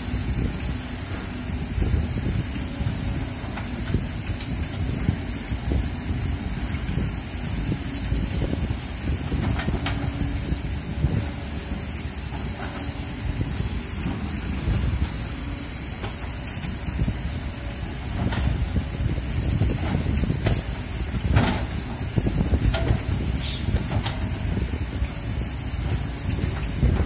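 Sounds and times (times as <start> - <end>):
excavator diesel engine running: 0.0 - 27.0
wind noise on microphone: 0.0 - 27.0.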